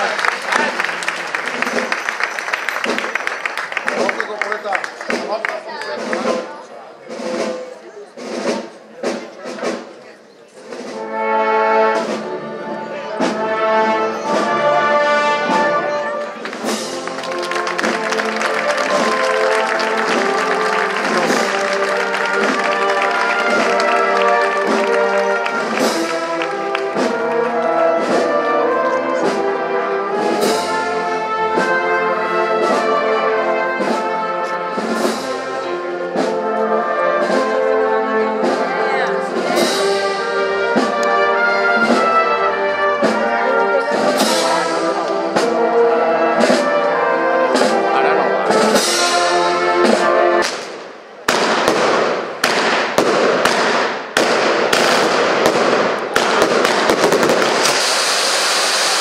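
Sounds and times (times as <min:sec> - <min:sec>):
brass band playing: 0:00.0 - 0:09.8, 0:10.6 - 0:59.0
steady drum beat: 0:00.4 - 0:10.0, 0:15.5 - 0:37.8, 0:38.4 - 0:58.0
fireworks crackling: 0:16.3 - 0:27.7, 0:50.4 - 0:59.0.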